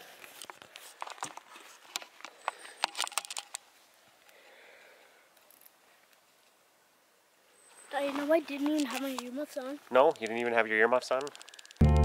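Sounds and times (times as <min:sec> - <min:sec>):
twigs snapping: 0:11.1 - 0:11.8.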